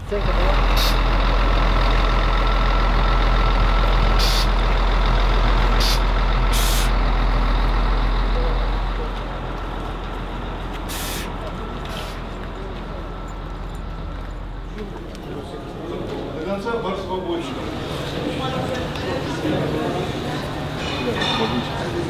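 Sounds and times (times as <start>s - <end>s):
bus engine idling: 0.0s - 22.0s
air hisses: 4.2s - 4.5s, 5.8s - 6.9s, 10.9s - 11.3s.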